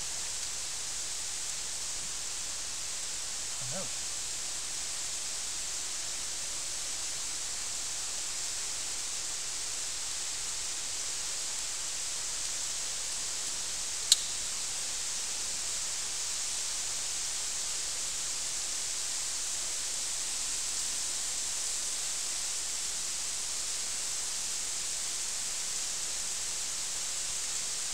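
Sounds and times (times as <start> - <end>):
sharp click: 14.1 - 14.4.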